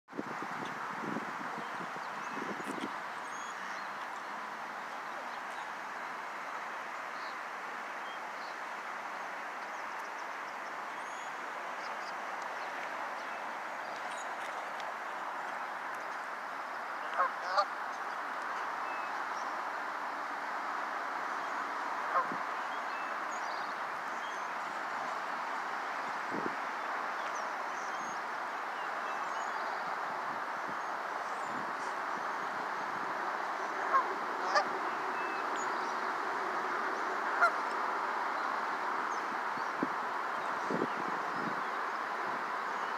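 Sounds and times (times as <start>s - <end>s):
rushing outdoor background noise: 0.1s - 42.9s
steady background hiss: 0.3s - 42.9s
geese honking: 17.0s - 17.7s, 33.8s - 34.8s, 37.3s - 37.8s.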